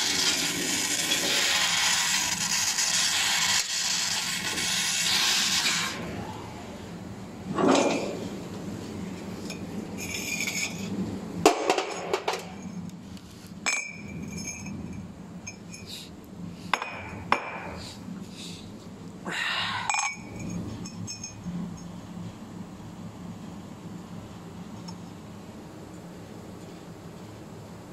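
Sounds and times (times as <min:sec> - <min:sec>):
low machine hum: 0:05.7 - 0:27.9
metal tube clinking: 0:13.6 - 0:15.9, 0:19.9 - 0:21.4.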